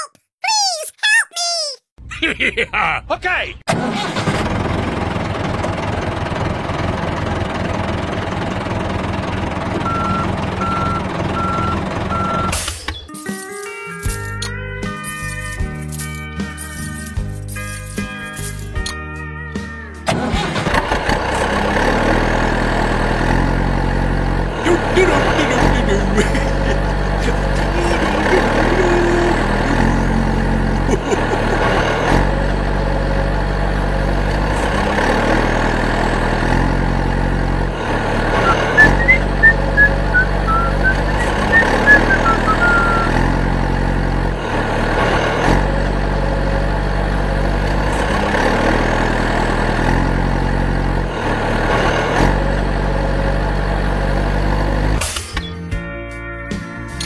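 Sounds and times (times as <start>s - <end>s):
heavy diesel engine running: 3.7s - 12.8s, 19.6s - 55.2s.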